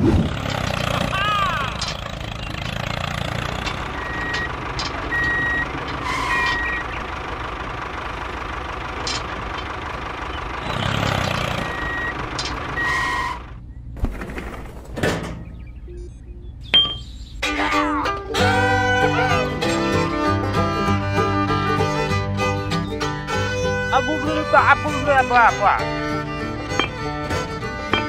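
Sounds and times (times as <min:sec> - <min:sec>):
truck engine running: 0:00.0 - 0:28.0
reversing alarm beeping: 0:04.0 - 0:07.1, 0:11.6 - 0:13.5, 0:15.6 - 0:17.4.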